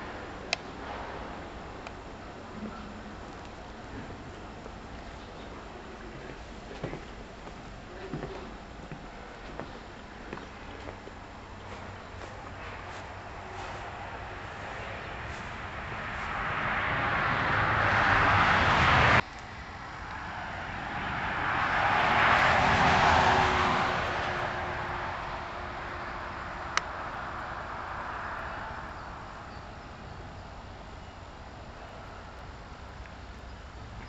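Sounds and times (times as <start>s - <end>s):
vehicles passing: 0.0s - 34.0s.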